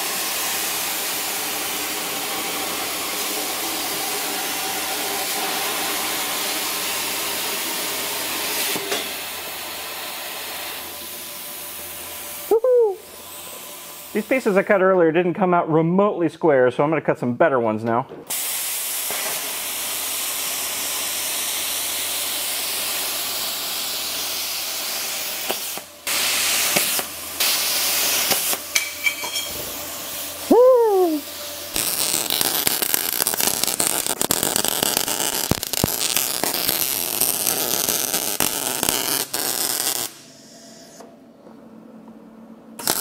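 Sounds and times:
plasma cutter hissing: 0:00.0 - 0:14.8, 0:18.3 - 0:41.0, 0:42.8 - 0:43.0
falling whistle: 0:30.5 - 0:31.3.

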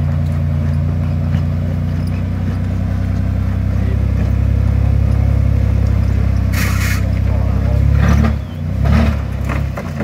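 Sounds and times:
truck engine running at low revs: 0:00.0 - 0:10.0.

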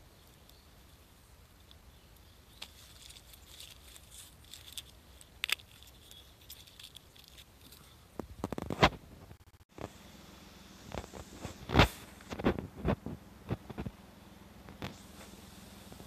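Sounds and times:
rustling in dry leaves: 0:00.0 - 0:08.8, 0:14.6 - 0:16.0.

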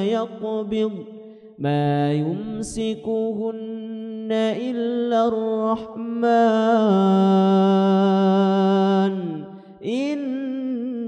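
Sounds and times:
man reciting melodically: 0:00.0 - 0:11.0
breath: 0:01.2 - 0:01.6, 0:09.5 - 0:09.8.

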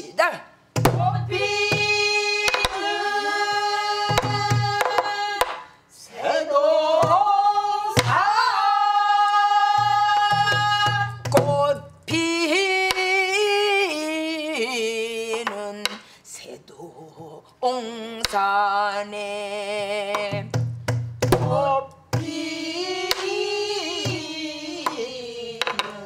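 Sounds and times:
woman singing: 0:01.0 - 0:05.6, 0:06.2 - 0:16.0, 0:21.5 - 0:26.0
barrel drum strokes: 0:04.0 - 0:05.5.

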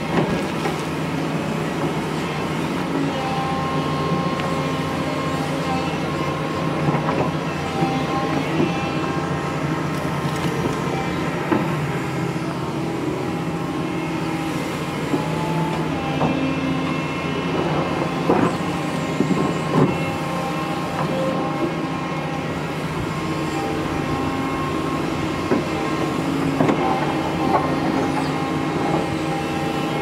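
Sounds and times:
excavator diesel engine running: 0:00.0 - 0:30.0.

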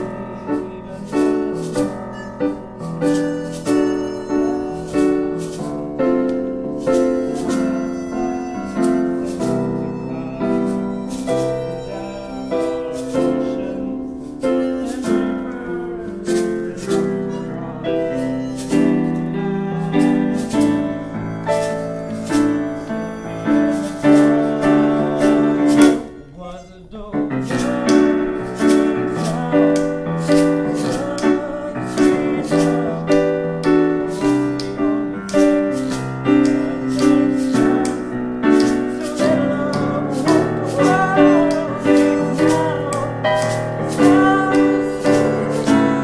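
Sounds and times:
hand shakers beat: 0:00.0 - 0:26.1, 0:27.3 - 0:46.0
digital piano chords and melody: 0:00.0 - 0:26.4, 0:27.1 - 0:46.0.

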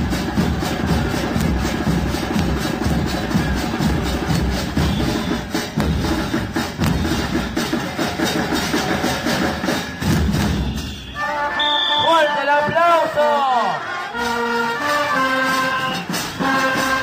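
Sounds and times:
drum-heavy background music: 0:00.0 - 0:11.2.

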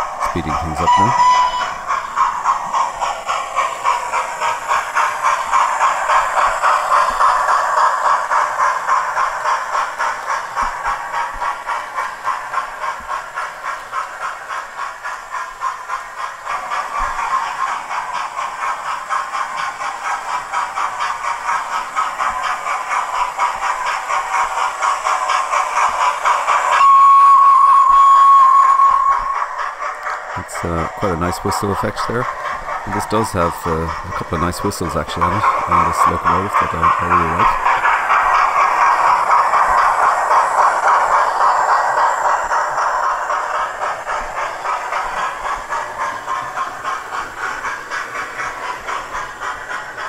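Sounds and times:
model steam locomotive chuffing: 0:00.0 - 0:50.0
chime whistle: 0:00.9 - 0:01.8, 0:26.8 - 0:29.3.

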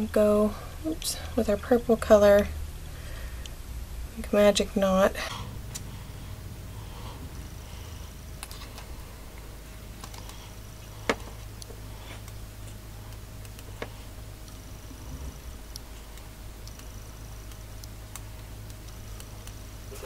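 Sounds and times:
steady low hum: 0:00.0 - 0:20.0
yarn handling noise: 0:06.8 - 0:20.0.

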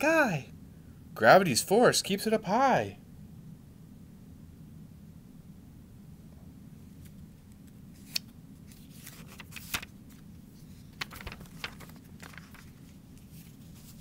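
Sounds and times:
low steady hum: 0:00.0 - 0:14.0
paper pages rustling: 0:07.9 - 0:14.0.

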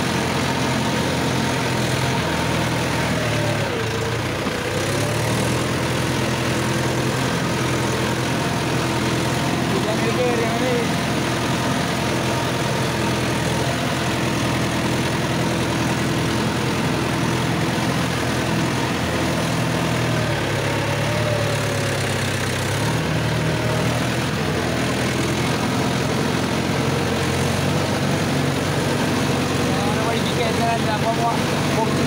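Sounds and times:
tractor diesel engine running: 0:00.0 - 0:32.0.

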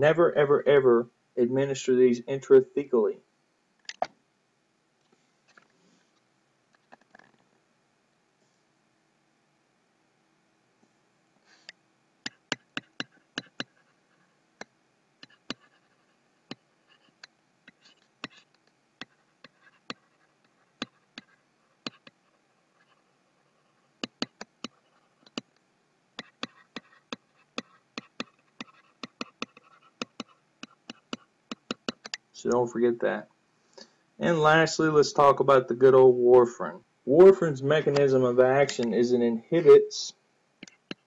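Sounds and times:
light stylus scratching: 0:11.5 - 0:25.5, 0:26.2 - 0:32.2
stylus clicking on tablet: 0:11.6 - 0:13.8, 0:14.6 - 0:15.8, 0:17.2 - 0:22.2, 0:24.0 - 0:25.6, 0:26.2 - 0:32.3, 0:40.6 - 0:41.0.

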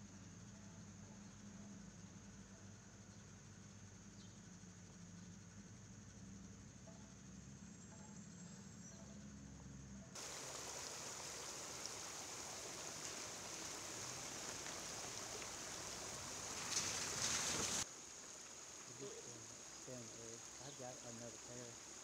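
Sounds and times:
faint low hum: 0:00.0 - 0:22.0
water rushing over rocks: 0:10.2 - 0:22.0.

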